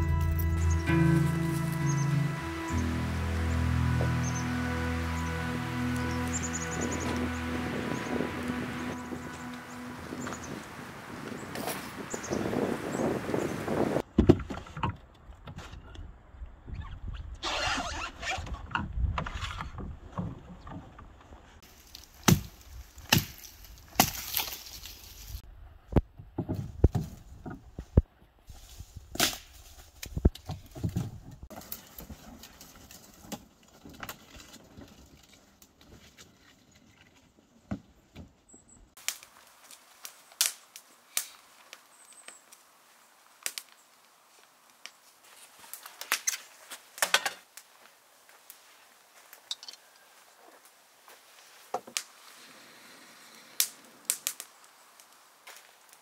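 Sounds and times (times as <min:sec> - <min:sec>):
dry branches snapping: 0:21.7 - 0:25.4, 0:29.1 - 0:30.5, 0:39.0 - 0:42.6, 0:43.4 - 0:45.0, 0:45.6 - 0:47.8, 0:53.6 - 0:56.0.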